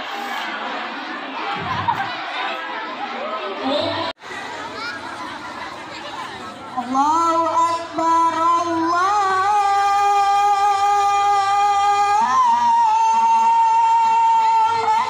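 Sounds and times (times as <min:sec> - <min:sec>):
child chanting recitation: 0:06.8 - 0:15.0.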